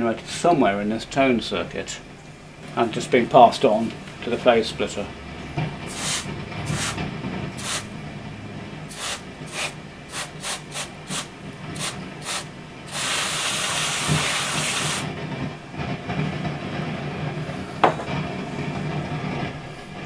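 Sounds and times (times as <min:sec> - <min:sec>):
aerosol spray hissing: 0:05.9 - 0:07.0, 0:07.6 - 0:07.9, 0:08.9 - 0:15.1.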